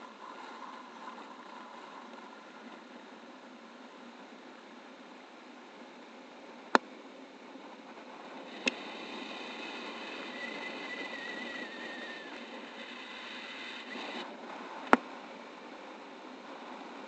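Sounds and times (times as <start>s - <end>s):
wind rushing over microphone: 7.5s - 17.0s.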